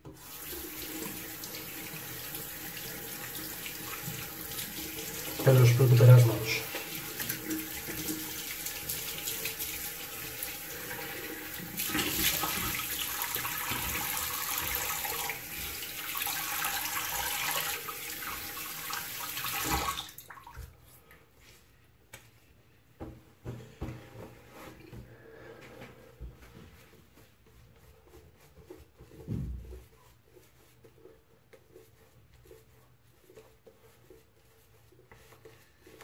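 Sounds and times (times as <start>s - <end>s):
tap water running into sink: 0.0s - 20.8s.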